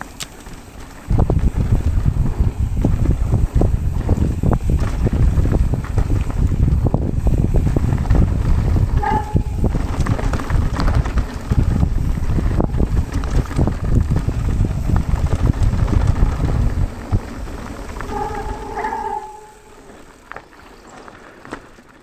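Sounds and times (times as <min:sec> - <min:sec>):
tyre rumble on dirt: 0:00.0 - 0:18.4
wind buffeting microphone: 0:00.0 - 0:20.3
bike rattling over bumps: 0:00.0 - 0:22.0
brief high-pitched tone: 0:18.1 - 0:19.8.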